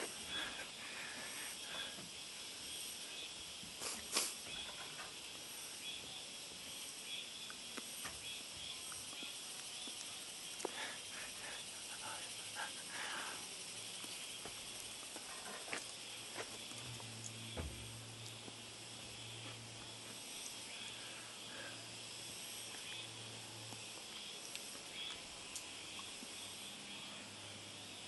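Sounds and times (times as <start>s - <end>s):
high-pitched outdoor hiss: 0.0s - 28.0s.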